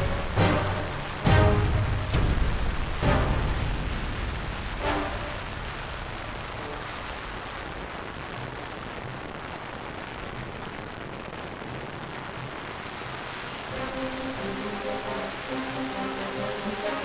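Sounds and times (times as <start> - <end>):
held music notes: 0.0 - 7.5, 13.6 - 17.0
steady rushing noise: 0.0 - 17.0.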